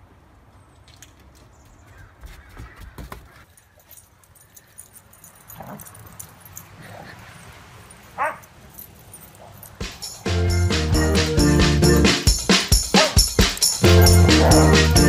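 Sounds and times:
dogs yipping: 3.8s - 10.3s, 12.8s - 15.0s.

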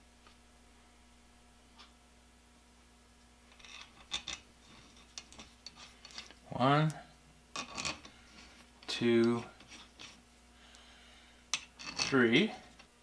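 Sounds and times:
metal tools clinking on workbench: 11.6s - 12.2s.

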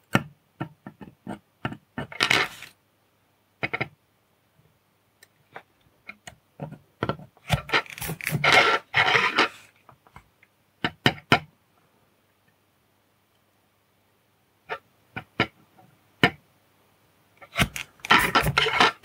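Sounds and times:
board scraping on surface: 2.2s - 2.7s, 17.4s - 19.0s
circuit board tapping and clicking: 3.6s - 4.0s.

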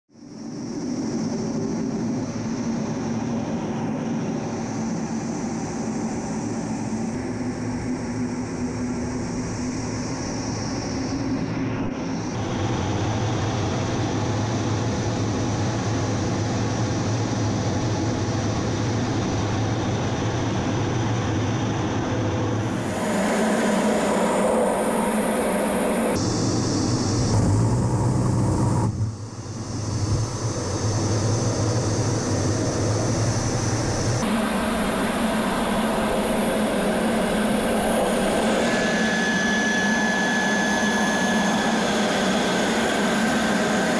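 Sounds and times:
jet engine drone in cockpit: 0.1s - 43.9s
rushing air: 22.5s - 43.9s.

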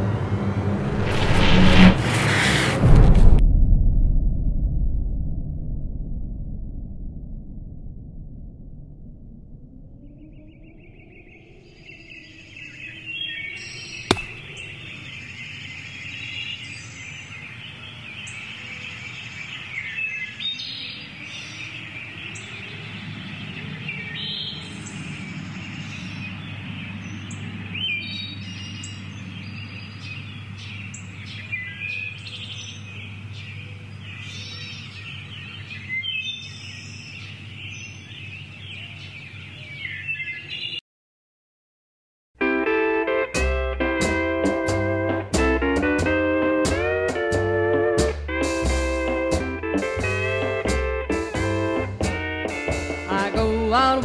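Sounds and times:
birds chirping and singing: 10.0s - 40.8s
sharp click: 14.1s - 14.7s.

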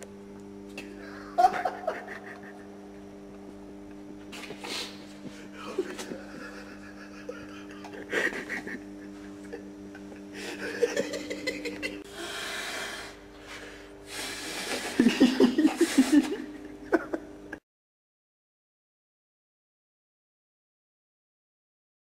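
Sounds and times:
steady hum: 0.0s - 17.6s
laughter: 1.1s - 2.8s, 5.6s - 12.0s, 14.7s - 17.6s
person blowing up balloon: 4.4s - 5.1s, 12.1s - 15.0s, 15.7s - 16.3s.

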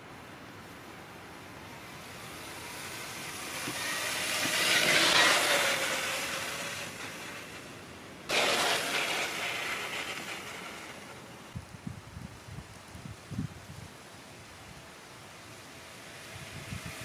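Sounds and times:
tyres rolling over dry leaves: 0.6s - 11.6s
electric motor whining: 1.7s - 11.6s.

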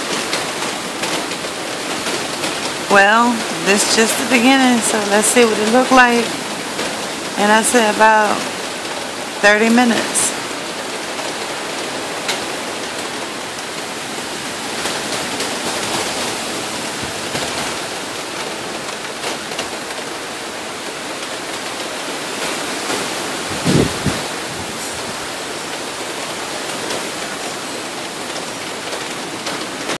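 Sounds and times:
heavy rain and wind: 0.0s - 30.0s.

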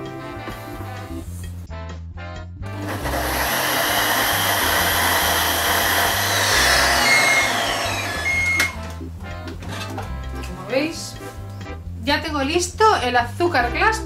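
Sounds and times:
food processor whirring grind: 2.8s - 9.0s.

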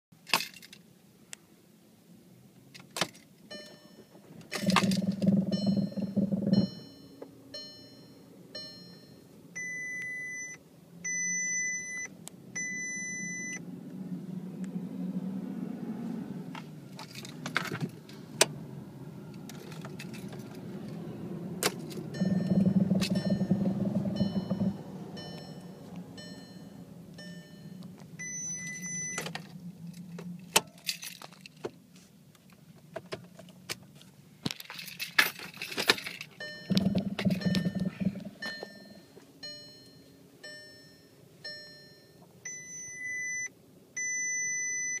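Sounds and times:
car engine hum: 0.8s - 44.1s
car warning chime beeps: 3.5s - 13.6s, 22.0s - 29.4s, 36.4s - 45.0s
keys jingling: 30.6s - 31.6s, 34.6s - 36.4s.

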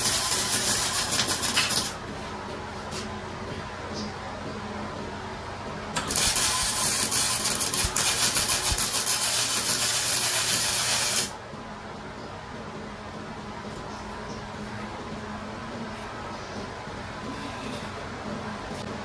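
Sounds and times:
arc welding crackling sizzle: 0.0s - 2.0s, 5.9s - 11.4s.

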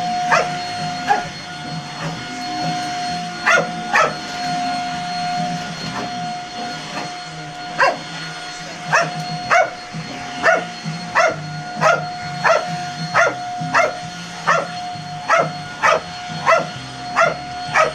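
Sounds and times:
vacuum cleaner motor whine: 0.0s - 17.9s
dog barking: 0.3s - 1.3s, 3.4s - 4.4s, 7.8s - 8.1s, 8.9s - 9.8s, 10.4s - 17.9s.

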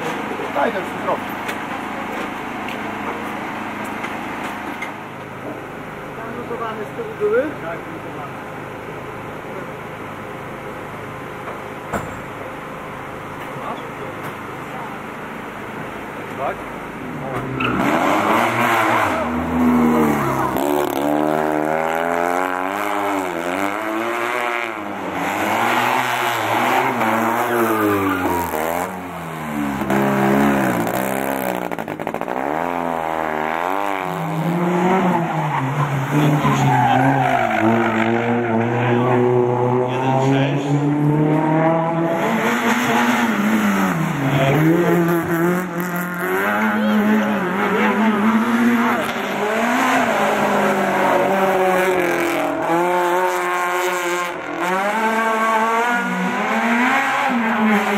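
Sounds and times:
small car engine revving: 16.4s - 57.9s
tyre squeals: 34.9s - 38.8s.

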